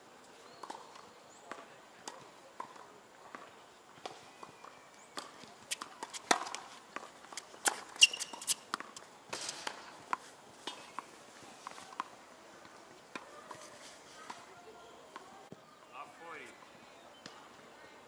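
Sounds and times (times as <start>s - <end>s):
racquets striking tennis ball: 5.2s - 11.1s
tennis ball bouncing: 5.2s - 11.1s.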